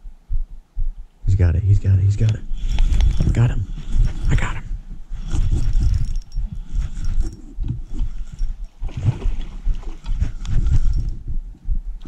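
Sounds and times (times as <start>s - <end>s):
rustling and scraping: 2.5s - 11.2s.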